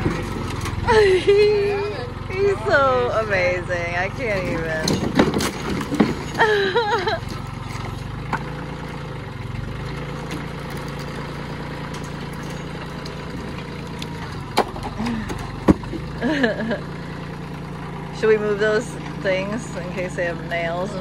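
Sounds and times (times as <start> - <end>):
tractor engine running: 0.0 - 21.0.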